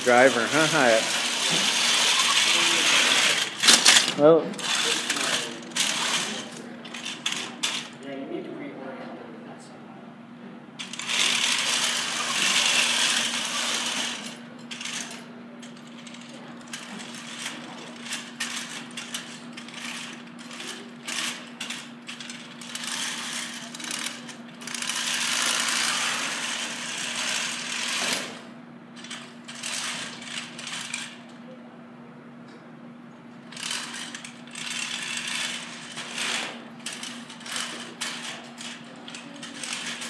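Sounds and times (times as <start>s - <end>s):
steady low hum: 0.0s - 40.0s
robot motors whirring: 0.2s - 7.9s, 10.8s - 15.2s, 16.0s - 28.4s, 33.5s - 40.0s.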